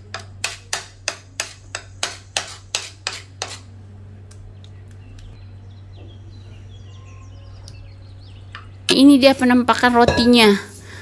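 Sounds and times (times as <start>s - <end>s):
faint bird chirps: 4.6s - 8.8s.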